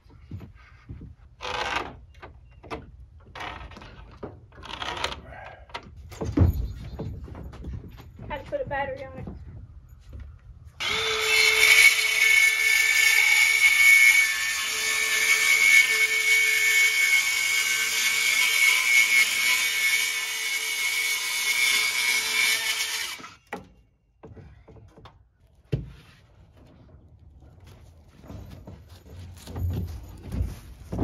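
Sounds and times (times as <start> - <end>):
circular saw cutting wood: 10.8 - 23.4.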